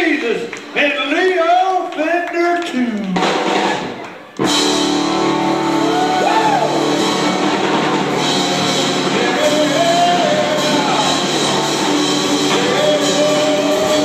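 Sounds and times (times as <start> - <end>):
live band with electric guitar: 3.0 - 14.0
gliding guitar or vocal notes: 4.5 - 14.0.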